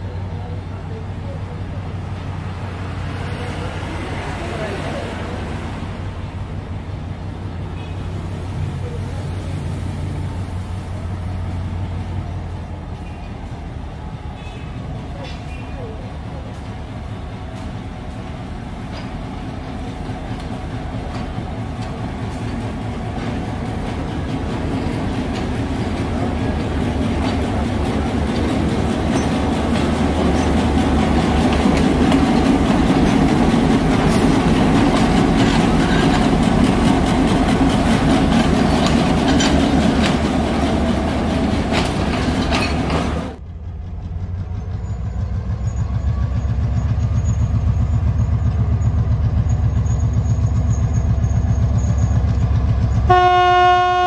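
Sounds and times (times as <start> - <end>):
diesel locomotive engine rumble: 0.0 - 54.0
wheels clicking over rail joints: 18.8 - 53.2.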